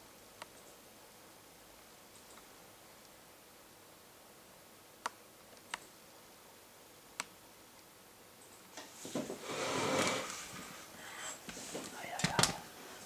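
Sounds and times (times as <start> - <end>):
rustling: 8.8 - 13.0.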